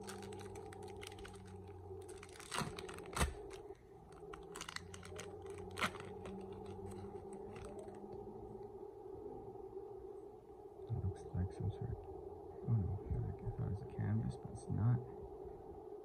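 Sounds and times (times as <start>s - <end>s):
foil wrapper tearing and crinkling: 0.0s - 8.0s
steady low hum: 0.0s - 16.0s.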